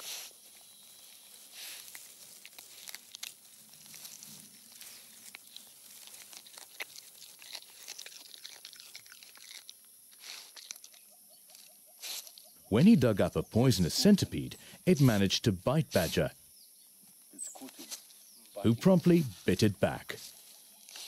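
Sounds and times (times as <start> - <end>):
claws scratching in dry soil: 0.0 - 12.6, 17.4 - 18.6, 20.2 - 21.0.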